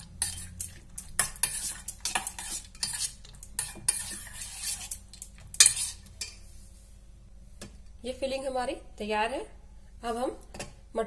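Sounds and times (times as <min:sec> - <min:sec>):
spoon clinking and scraping pot: 0:00.0 - 0:06.5.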